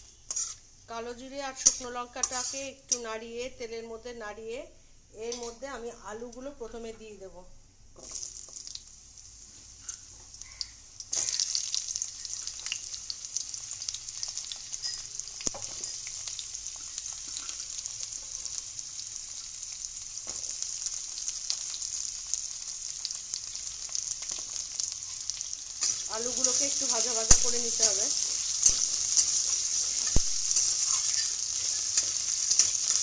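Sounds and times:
potatoes sizzling in hot oil: 0:00.0 - 0:03.2, 0:08.0 - 0:33.0
oil crackling: 0:22.2 - 0:33.0.

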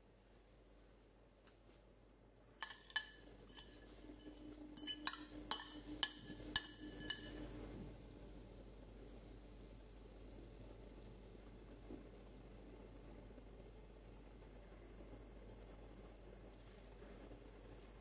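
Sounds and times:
metal utensil clinking on pot: 0:02.6 - 0:07.6.

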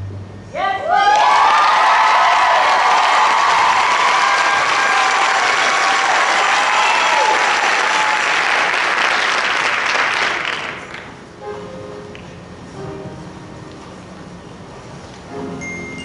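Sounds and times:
audience applauding: 0:01.1 - 0:11.2.

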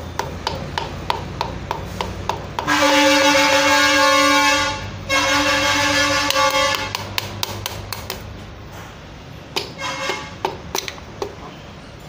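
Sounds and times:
steady horn: 0:02.6 - 0:07.1, 0:09.7 - 0:10.4.

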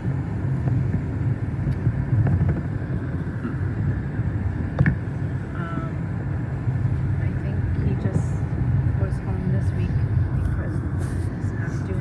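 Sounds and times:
car engine and tyres rumbling: 0:00.0 - 0:12.0.

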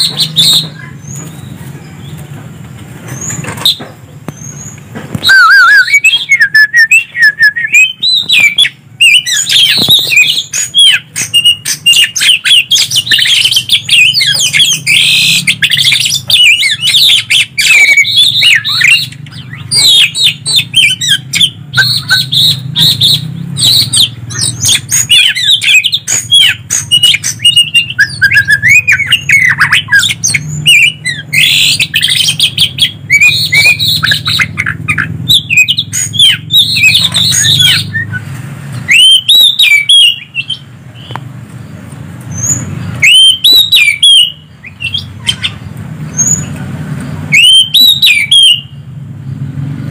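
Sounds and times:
birds singing whistled phrases: 0:00.0 - 0:02.2, 0:03.1 - 0:46.6, 0:47.2 - 0:49.0.

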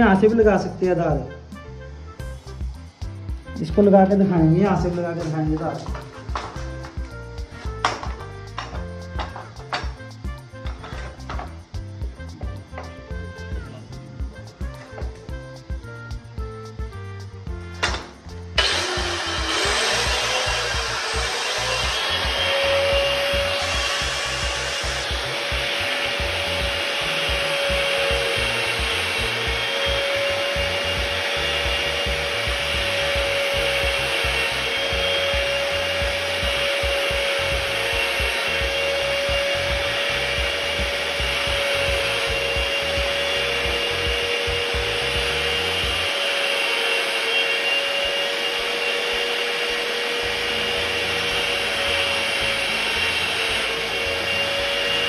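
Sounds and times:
handheld power tool running: 0:00.0 - 0:55.0.

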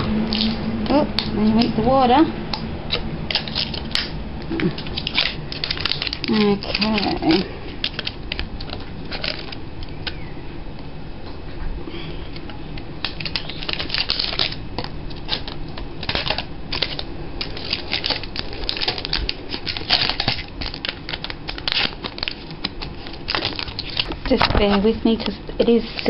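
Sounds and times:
scissors snipping plastic: 0:02.5 - 0:10.2.

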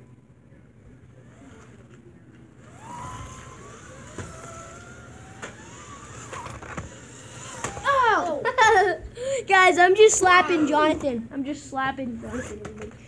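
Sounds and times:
small electric motor whining: 0:01.2 - 0:08.6.

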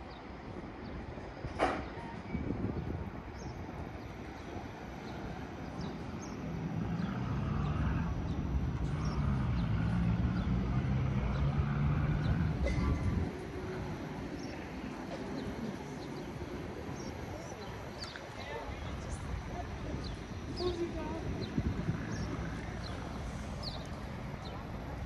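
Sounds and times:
street noise: 0:00.0 - 0:25.0
vehicle engine droning: 0:05.7 - 0:18.1, 0:18.7 - 0:25.0.

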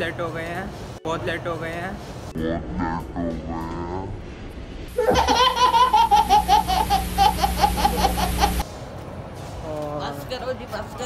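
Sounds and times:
steady hum: 0:02.0 - 0:08.8
baby laughing: 0:05.0 - 0:08.6.

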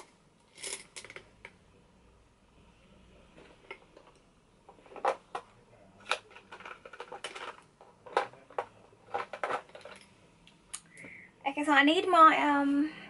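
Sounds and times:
makeup products being rummaged: 0:06.0 - 0:10.1
small rattling clatter: 0:06.3 - 0:10.1.

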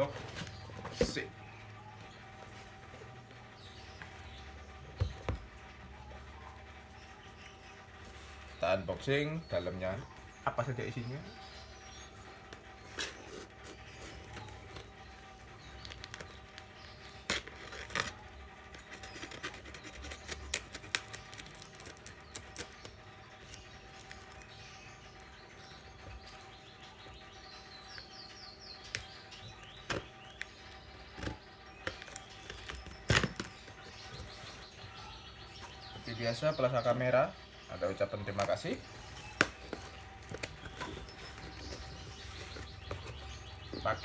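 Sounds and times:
faint bird chirps: 0:21.3 - 0:44.0.

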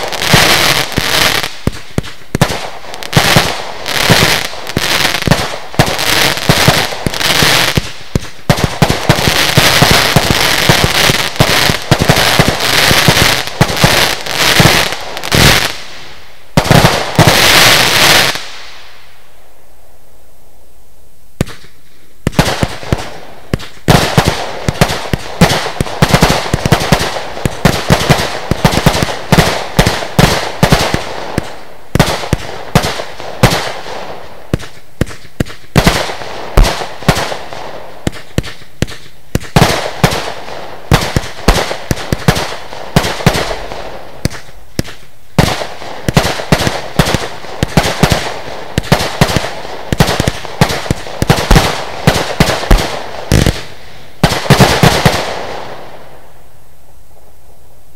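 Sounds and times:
firework cake firing shots: 0:21.4 - 0:55.8.

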